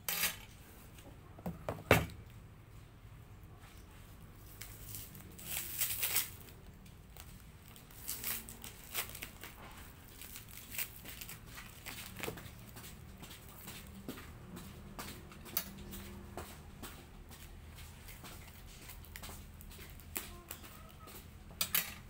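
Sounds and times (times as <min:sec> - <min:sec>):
paper wrapping crinkling: 0:04.4 - 0:12.8.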